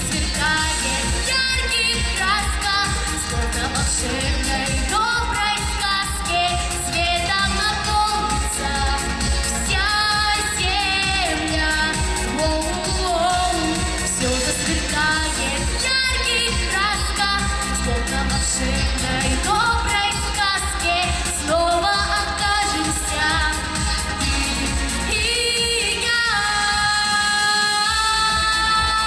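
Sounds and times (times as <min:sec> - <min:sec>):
girl singing pop song: 0:00.0 - 0:29.0
pop accompaniment with bass line: 0:00.0 - 0:29.0.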